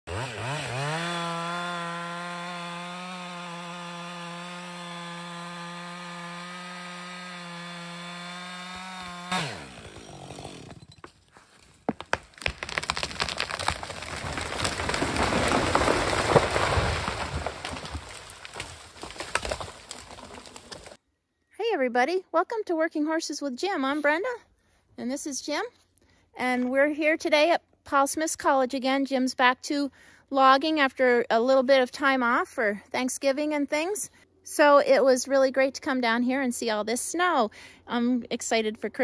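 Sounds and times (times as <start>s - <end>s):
chainsaw engine revving: 0.1s - 10.9s
wood cracking and snapping: 11.5s - 21.0s.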